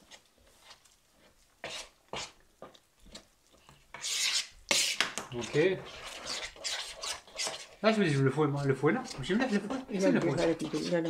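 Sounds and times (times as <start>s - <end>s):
hand working flour in a bowl: 0.0s - 11.0s
spoon scraping flour in a bowl: 0.0s - 11.0s.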